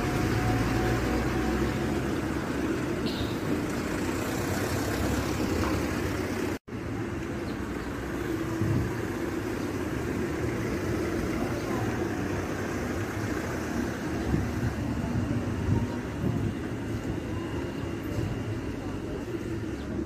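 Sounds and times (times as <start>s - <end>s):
low rumble of cars: 0.0s - 20.0s.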